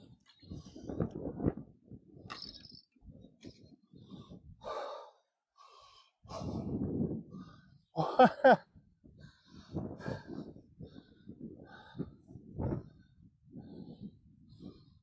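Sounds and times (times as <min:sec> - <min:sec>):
person breathing hard: 0:04.0 - 0:07.9, 0:09.2 - 0:15.0.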